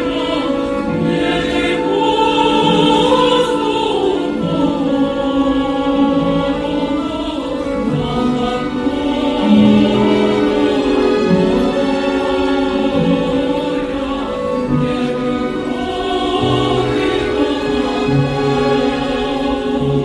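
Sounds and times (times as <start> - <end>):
slow choral music over held chords: 0.0 - 20.0.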